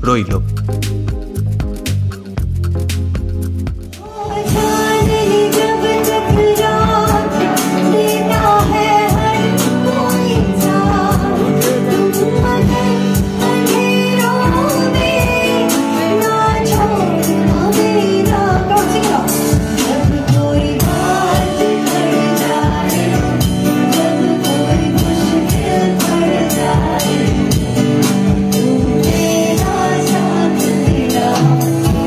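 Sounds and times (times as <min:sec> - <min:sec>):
bass-heavy stage music: 0:00.0 - 0:32.0
woman singing with band: 0:04.0 - 0:32.0.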